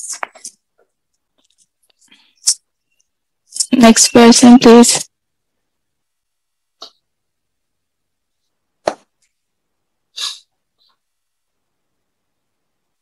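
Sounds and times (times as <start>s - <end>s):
short breathy burst: 10.1s - 10.5s
faint puff: 10.2s - 10.5s.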